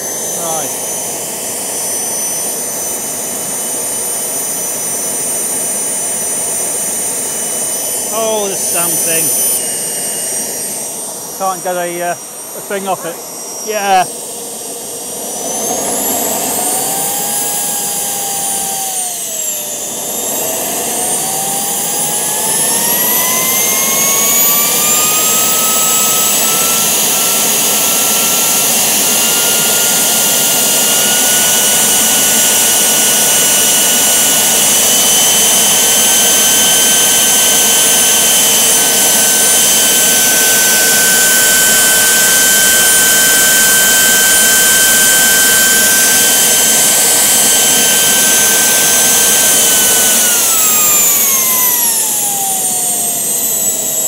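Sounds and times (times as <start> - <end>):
gas turbine whine and hiss: 0.0 - 54.0.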